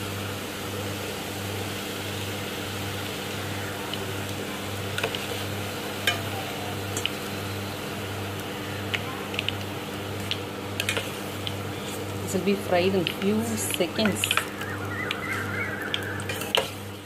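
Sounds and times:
food sizzling in hot oil: 0:00.0 - 0:17.0
pulsing low hum: 0:13.6 - 0:16.3.

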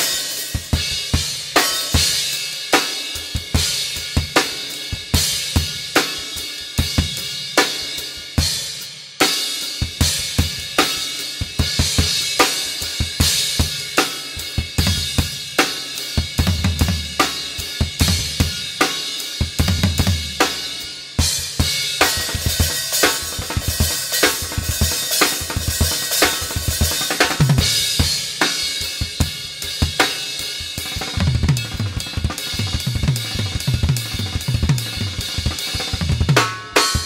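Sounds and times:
drum kit played with sticks: 0:00.0 - 0:37.0
low tom and bass drum runs: 0:19.6 - 0:20.4, 0:30.6 - 0:37.0.

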